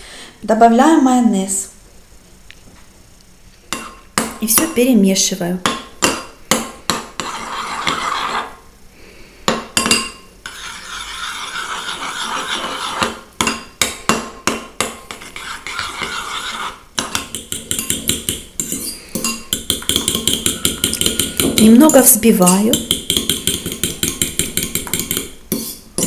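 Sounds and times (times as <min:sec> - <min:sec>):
metal spoon stirring in ceramic bowl: 0:06.9 - 0:08.6, 0:09.8 - 0:13.6, 0:14.8 - 0:26.0
spoon beating against bowl: 0:17.0 - 0:26.0.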